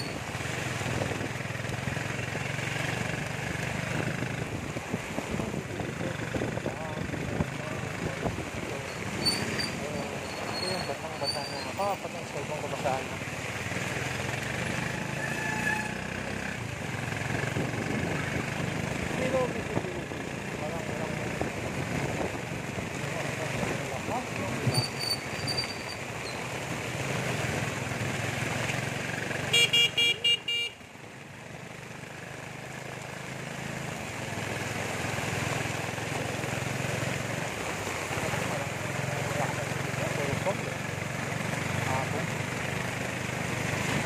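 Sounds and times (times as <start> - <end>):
motorcycle engine running: 0.0 - 11.0, 16.0 - 44.0
heavy rain hissing on a roof: 32.0 - 44.0.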